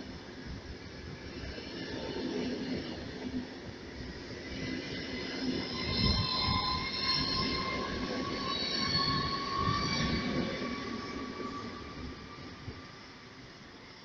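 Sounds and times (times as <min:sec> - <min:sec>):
low train rumble: 0:00.0 - 0:14.0
train wheels squealing: 0:04.0 - 0:14.0.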